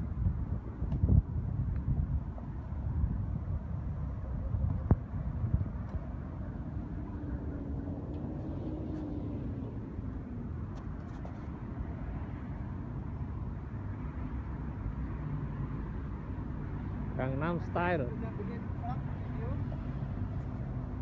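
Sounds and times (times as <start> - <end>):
city road traffic rumble: 0.0 - 21.0
vehicle engine hum: 1.0 - 21.0.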